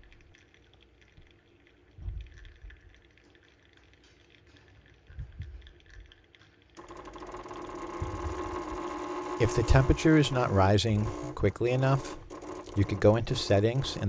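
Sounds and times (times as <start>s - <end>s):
soft low thumps: 2.0s - 2.8s, 5.1s - 5.7s
espresso machine pump buzzing: 6.8s - 14.0s.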